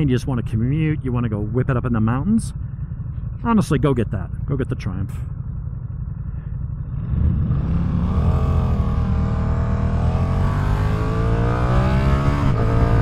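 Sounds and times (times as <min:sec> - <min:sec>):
motorcycle engine accelerating: 0:05.1 - 0:13.0.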